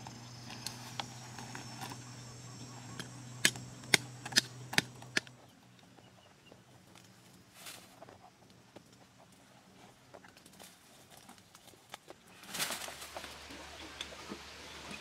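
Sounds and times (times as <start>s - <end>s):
high insect drone: 0.0s - 5.3s
low hum: 0.0s - 6.5s.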